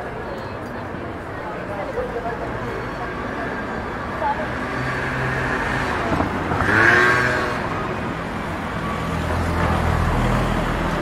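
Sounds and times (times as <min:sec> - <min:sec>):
road noise: 0:00.0 - 0:11.0
motor vehicle running nearby: 0:04.5 - 0:11.0.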